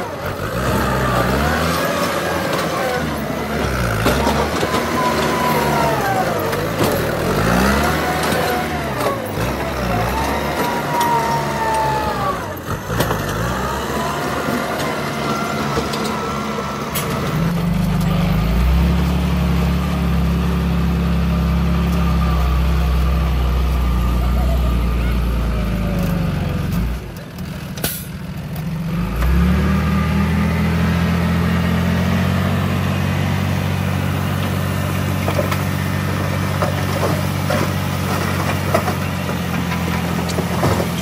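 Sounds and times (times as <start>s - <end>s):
blade pushing rock and soil: 0.0s - 19.2s, 32.0s - 41.0s
dump truck diesel engine: 0.0s - 41.0s
tractor diesel engine revving: 0.0s - 41.0s.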